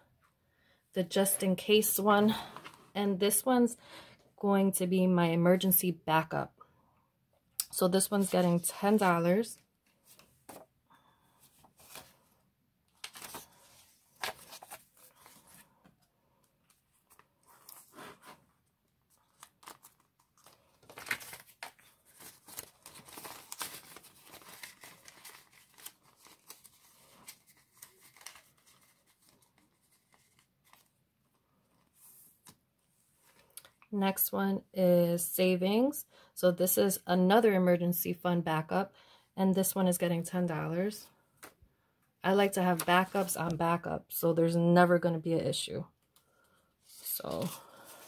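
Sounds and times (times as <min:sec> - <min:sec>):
paper banknotes rustling: 0:19.1 - 0:30.9
plastic zip pouch crinkling: 0:19.2 - 0:30.9.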